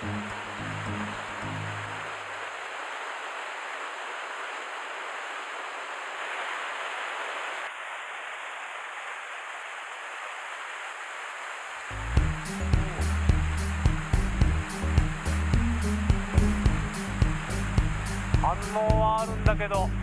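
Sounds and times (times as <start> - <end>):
mountain stream rushing: 0.0 - 20.0
small waterfall: 0.0 - 20.0.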